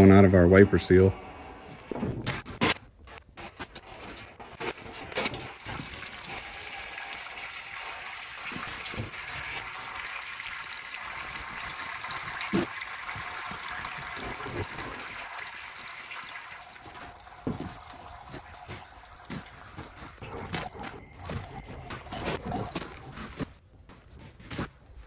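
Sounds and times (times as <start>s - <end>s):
oil trickling into drip pan: 4.7s - 20.2s.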